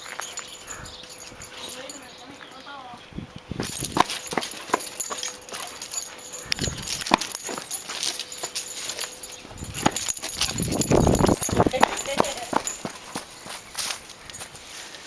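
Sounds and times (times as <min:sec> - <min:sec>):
dog paws thudding on ground: 0:03.6 - 0:14.6.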